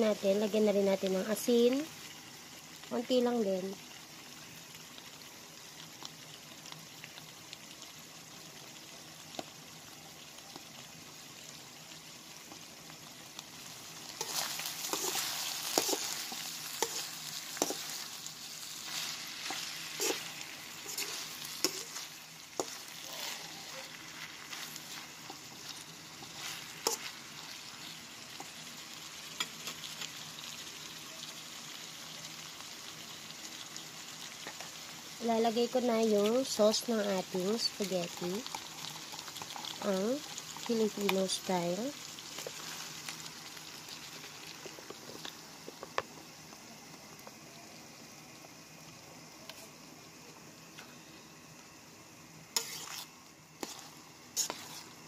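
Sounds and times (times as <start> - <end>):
meat sizzling in a frying pan: 0.0 - 55.0
utensil stirring and scraping pan: 14.0 - 28.6, 52.6 - 55.0.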